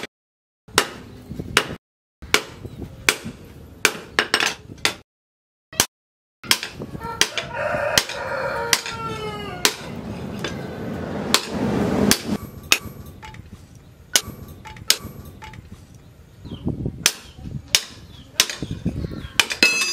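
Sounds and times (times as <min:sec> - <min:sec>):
rooster crowing: 0:07.0 - 0:10.0
hammer striking steel on anvil: 0:11.3 - 0:13.5, 0:14.1 - 0:15.7, 0:19.4 - 0:19.9.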